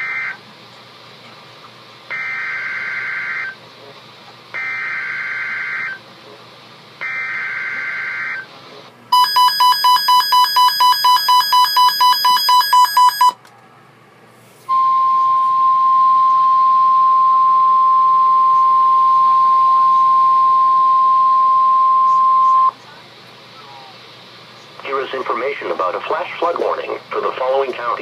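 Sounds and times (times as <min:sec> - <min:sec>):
steady alarm tone: 0:00.0 - 0:00.4, 0:02.1 - 0:03.6, 0:04.6 - 0:06.0, 0:07.0 - 0:08.5, 0:09.1 - 0:13.4, 0:14.7 - 0:22.8.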